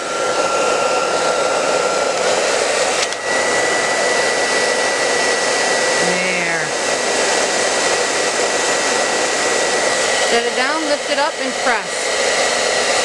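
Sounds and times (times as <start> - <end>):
hair dryer blowing: 0.0 - 13.0
hair dryer switch click: 3.0 - 3.3.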